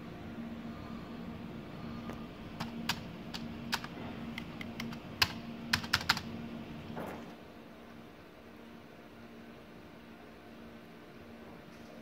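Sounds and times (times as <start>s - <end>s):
steady low hum: 0.0s - 12.0s
keyboard keys clicking: 2.6s - 6.3s.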